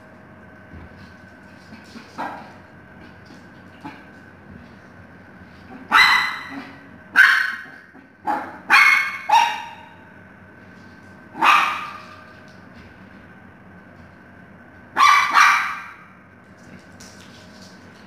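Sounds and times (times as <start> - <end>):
puppy barking high-pitched: 5.8 - 10.0, 11.4 - 12.2, 14.9 - 16.1.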